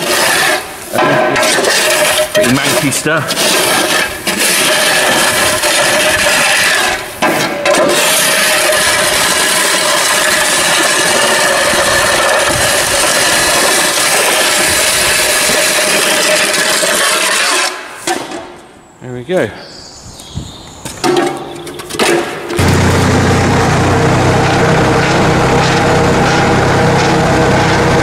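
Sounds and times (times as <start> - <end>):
shovel scraping concrete floor: 0.0 - 18.6.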